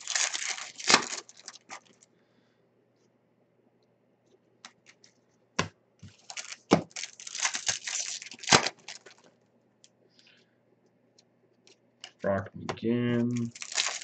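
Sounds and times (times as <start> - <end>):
cards rustling and clicking: 0.0 - 2.0, 6.1 - 9.3, 13.2 - 14.0.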